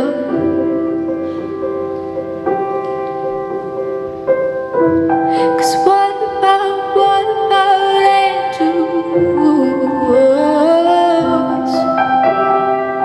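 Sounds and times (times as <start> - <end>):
person singing: 0.0 - 0.8, 5.3 - 12.0
piano chords: 0.0 - 13.0.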